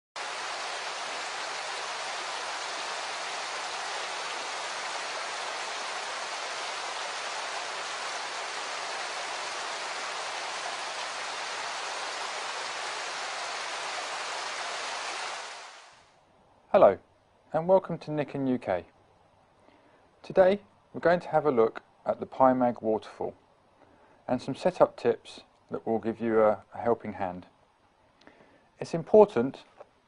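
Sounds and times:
running water rushing: 0.2s - 16.1s.

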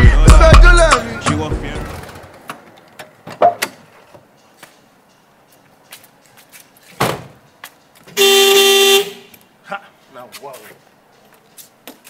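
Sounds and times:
car door shutting thud: 7.0s - 7.4s.

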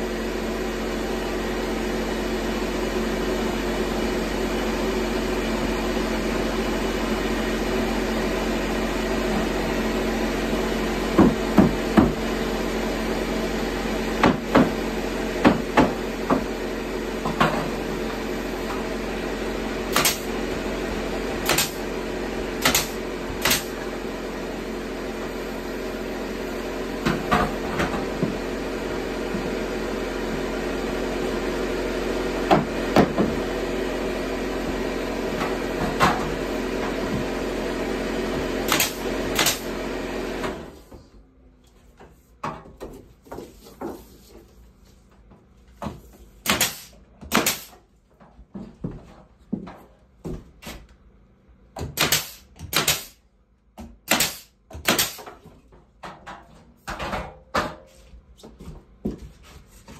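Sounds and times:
air compressor running: 0.0s - 41.2s, 46.0s - 47.9s, 51.2s - 53.3s, 53.9s - 55.4s
nail gun shots: 19.9s - 20.3s, 21.4s - 21.8s, 22.6s - 23.8s, 38.7s - 39.7s, 46.4s - 47.8s, 51.8s - 53.2s, 54.0s - 55.3s.

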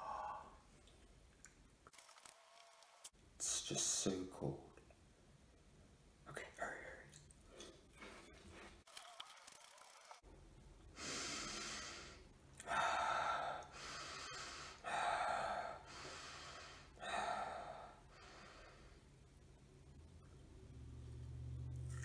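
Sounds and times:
man breathing heavily: 0.0s - 0.6s, 11.0s - 19.0s.

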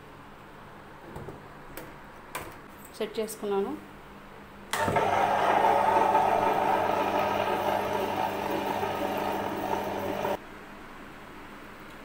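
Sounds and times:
wet grinder running: 4.8s - 10.4s.

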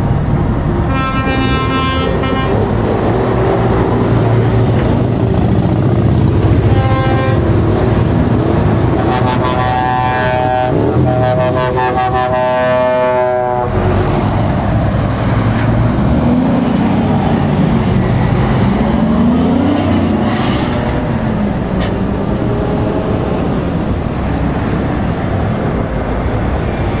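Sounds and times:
diesel trucks passing slowly: 0.0s - 27.0s
truck air horn: 0.9s - 2.8s, 6.6s - 7.6s, 9.0s - 13.8s
truck engine pulling away: 13.7s - 26.9s.

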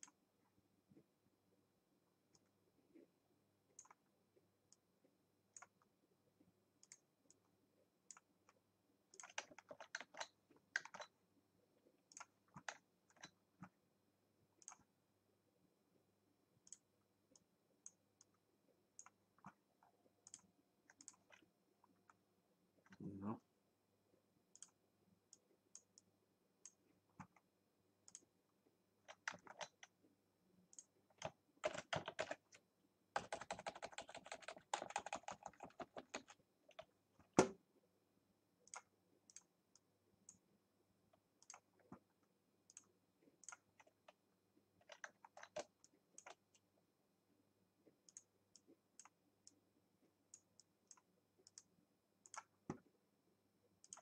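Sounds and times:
computer mouse clicks: 0.0s - 0.2s, 3.8s - 4.1s, 5.5s - 5.9s, 6.8s - 7.5s, 8.1s - 11.2s, 12.0s - 13.8s, 14.6s - 14.9s, 16.6s - 22.2s, 24.5s - 28.3s, 29.0s - 30.0s, 30.7s - 32.6s, 33.2s - 37.5s, 38.6s - 40.4s, 41.4s - 44.2s, 44.8s - 46.6s, 48.0s - 49.6s, 50.3s - 52.9s, 53.8s - 54.0s
keyboard keys clicking: 9.1s - 11.2s, 30.7s - 32.6s, 33.2s - 37.5s, 44.8s - 46.6s.

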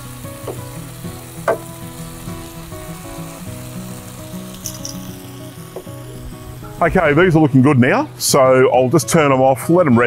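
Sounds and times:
meat sizzling in a frying pan: 0.0s - 7.5s
background music: 0.0s - 10.0s
tongs knocking on pan: 1.5s - 1.7s.

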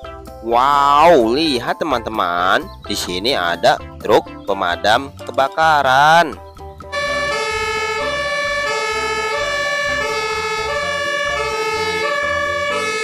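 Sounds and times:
two-tone fire engine siren: 6.9s - 13.0s.

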